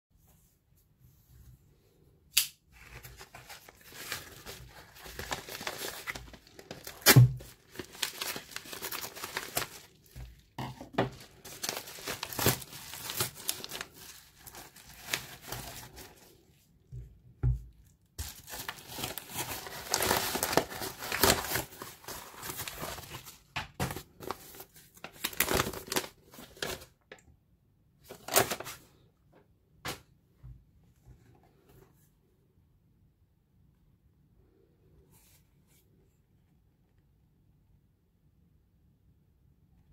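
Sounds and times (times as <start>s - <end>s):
paper envelope tearing and crinkling: 2.8s - 16.4s, 18.2s - 26.9s, 28.1s - 28.8s.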